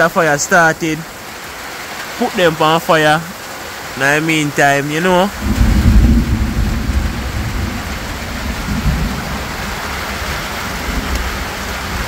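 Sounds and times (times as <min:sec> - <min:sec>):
heavy rain falling: 0:00.0 - 0:12.0
deep low rumble: 0:05.4 - 0:09.8.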